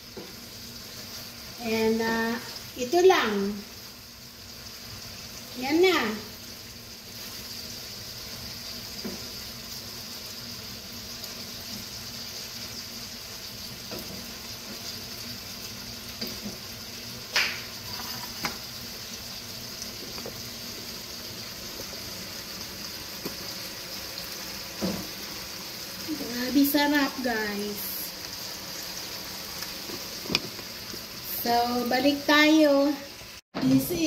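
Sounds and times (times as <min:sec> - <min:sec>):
stir-fry sizzling: 0:00.0 - 0:34.0
wooden spatula scraping pan: 0:17.8 - 0:18.6.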